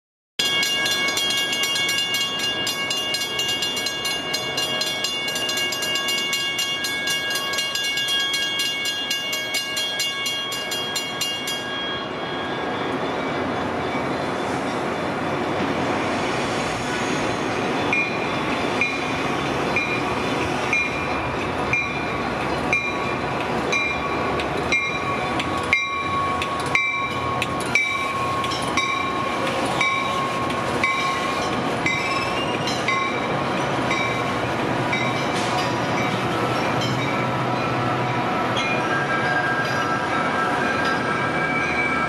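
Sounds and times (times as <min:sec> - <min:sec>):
crossing warning bell ringing: 0:00.4 - 0:14.9, 0:17.7 - 0:42.0
diesel train rumbling: 0:00.4 - 0:42.0.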